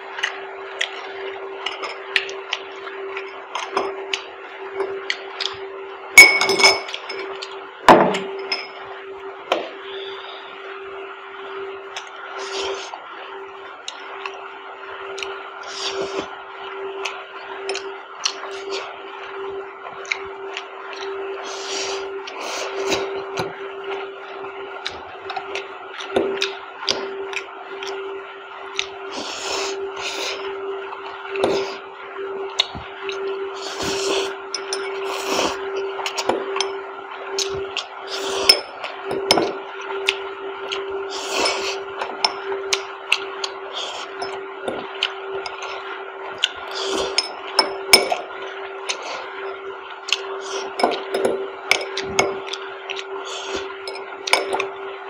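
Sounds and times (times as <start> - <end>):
steady low hum: 0.0 - 55.0
fork clinking against glass bowls: 6.2 - 7.3.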